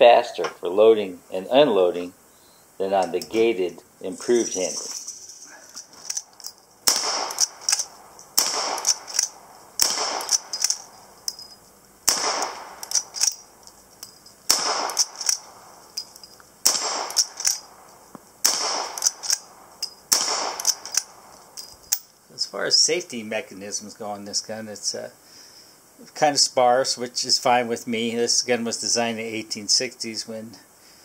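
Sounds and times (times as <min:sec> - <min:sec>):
rifle lever metallic clicks: 0:06.0 - 0:11.4, 0:12.1 - 0:13.4, 0:14.0 - 0:15.4, 0:16.0 - 0:17.6, 0:18.4 - 0:22.1
rifle shots: 0:06.8 - 0:10.8, 0:12.0 - 0:13.3, 0:14.5 - 0:15.5, 0:16.6 - 0:17.6, 0:18.4 - 0:19.5, 0:20.1 - 0:21.2.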